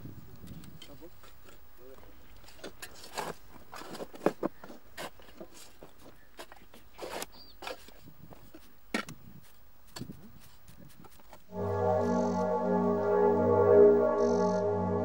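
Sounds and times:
shovels digging in sandy soil: 2.5s - 11.4s.

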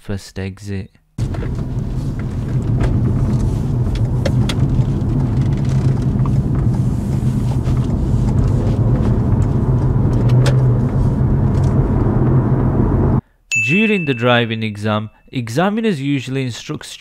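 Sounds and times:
road and tyre noise: 1.2s - 13.2s.

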